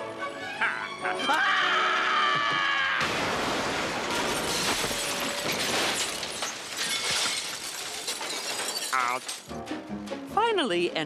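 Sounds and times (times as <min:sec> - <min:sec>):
cartoon character screaming: 0:00.6 - 0:03.1
car crash: 0:02.5 - 0:09.5
glass shattering: 0:03.0 - 0:09.6.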